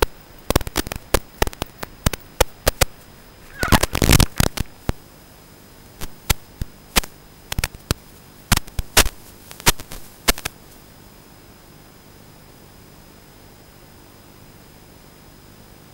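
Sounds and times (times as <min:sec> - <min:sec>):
crackling clicks: 0:00.0 - 0:05.0, 0:06.0 - 0:10.8
static hiss and hum: 0:00.0 - 0:15.9.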